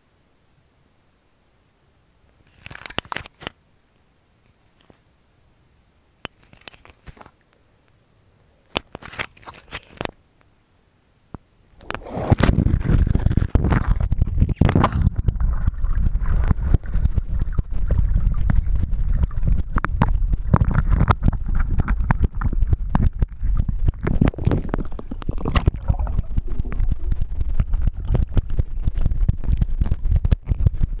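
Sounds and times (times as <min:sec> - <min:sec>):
bubbling clicks and knocks: 0:06.3 - 0:07.4, 0:11.8 - 0:31.0
muffled water rushing underwater: 0:11.8 - 0:31.0.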